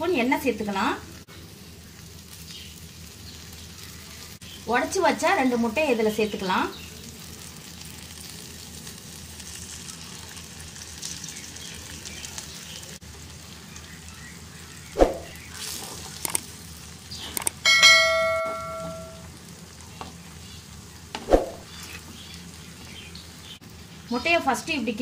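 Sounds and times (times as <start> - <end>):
eggs sizzling in hot oil: 0.1 - 25.0
ringing metallic clink: 17.5 - 19.2.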